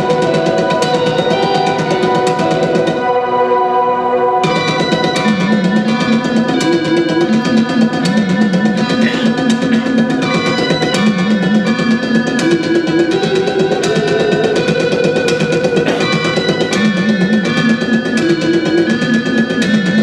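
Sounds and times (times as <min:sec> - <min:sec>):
electric guitar riff: 0:00.0 - 0:20.0
drum beat: 0:04.5 - 0:20.0.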